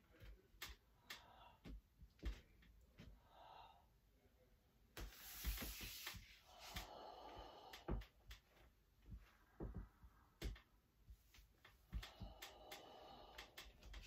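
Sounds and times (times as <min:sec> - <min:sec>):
person exhaling: 0:05.4 - 0:08.0, 0:11.9 - 0:13.8.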